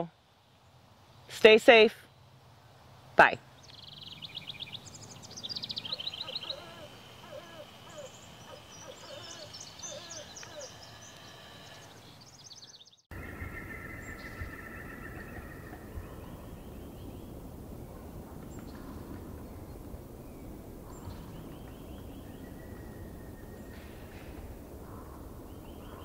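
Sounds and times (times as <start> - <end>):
songbirds trilling and chirping: 0.0 - 26.0
short low bird calls: 5.7 - 16.5
wind rumbling on microphone: 13.1 - 26.0.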